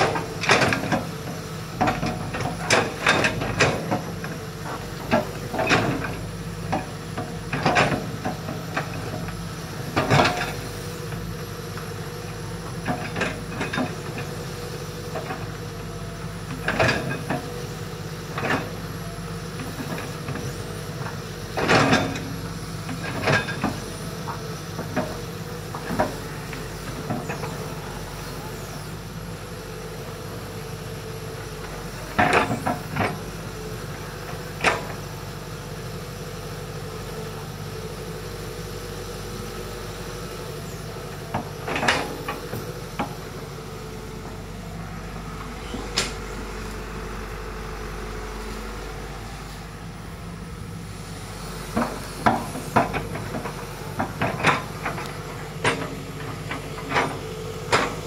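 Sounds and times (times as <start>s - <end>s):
excavator diesel engine running: 0.0s - 58.0s
excavator bucket clanking: 51.7s - 58.0s.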